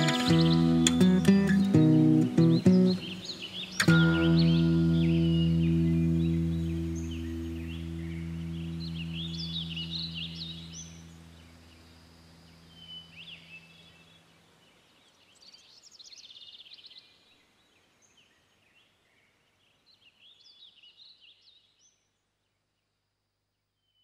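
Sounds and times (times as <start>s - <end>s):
songbirds chirping: 0.0s - 24.0s
low held musical chord: 3.9s - 13.5s.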